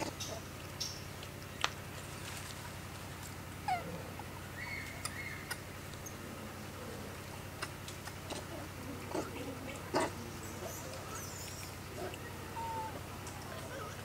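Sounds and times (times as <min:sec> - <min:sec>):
steady low hum: 0:00.0 - 0:14.0
faint animal calls: 0:03.6 - 0:14.0.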